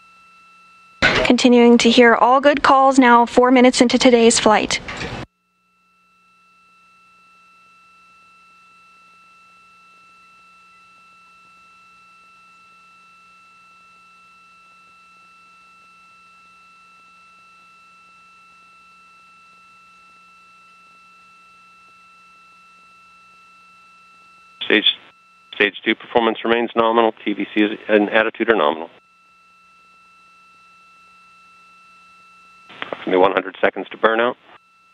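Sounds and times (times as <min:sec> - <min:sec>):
low hum: 0:18.4 - 0:34.6
steady electronic tone: 0:19.8 - 0:34.9
higher electronic tone: 0:32.7 - 0:34.4.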